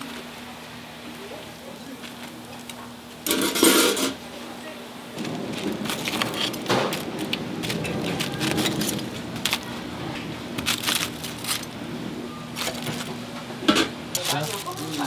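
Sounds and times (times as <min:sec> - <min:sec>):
steady low hum: 0:00.0 - 0:15.0
fried batter crunching: 0:05.2 - 0:09.9, 0:10.6 - 0:11.7, 0:14.1 - 0:15.0.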